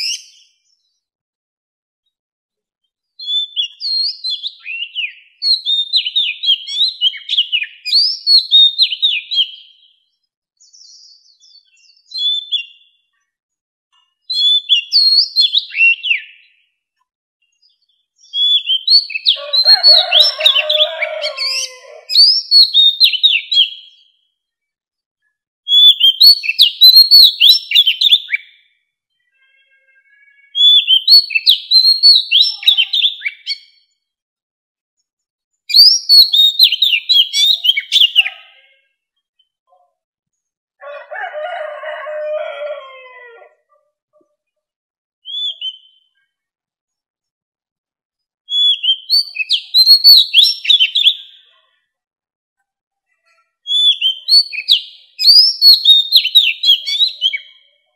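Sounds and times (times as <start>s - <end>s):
bird singing whistled notes: 3.2s - 10.0s, 10.6s - 13.0s, 14.3s - 16.6s, 17.6s - 21.0s, 21.6s - 24.1s, 25.7s - 28.6s, 30.5s - 33.9s, 35.7s - 38.3s, 45.2s - 46.2s, 48.5s - 51.5s, 53.7s - 57.6s.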